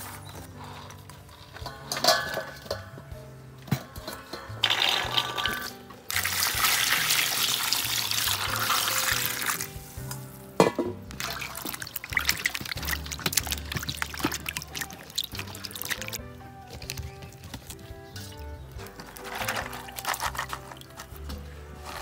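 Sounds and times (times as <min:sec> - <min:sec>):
background music: 0:00.0 - 0:22.0
liquid pouring: 0:04.6 - 0:09.8, 0:11.1 - 0:17.7.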